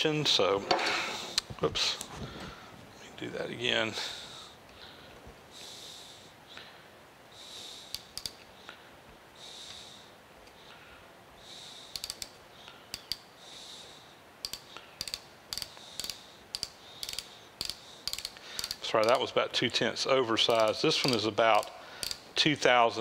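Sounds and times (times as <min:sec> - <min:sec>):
micrometer ratchet clicking: 0:07.9 - 0:08.5, 0:11.9 - 0:13.3, 0:14.4 - 0:19.3, 0:20.5 - 0:22.4.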